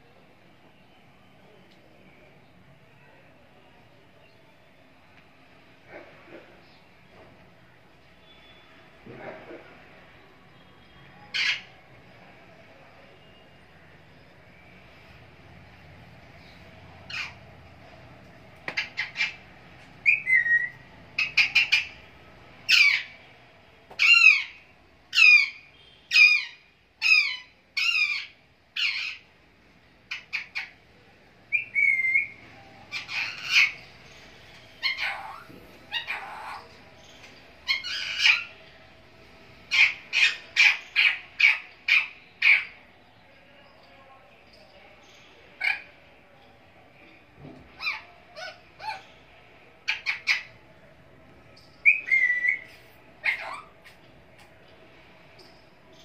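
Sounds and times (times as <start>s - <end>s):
parakeet screeching: 11.3s - 11.7s, 17.1s - 17.4s, 22.7s - 23.2s, 32.9s - 33.9s, 34.8s - 36.8s, 37.6s - 38.6s, 39.7s - 42.8s, 47.8s - 49.1s, 51.8s - 53.8s.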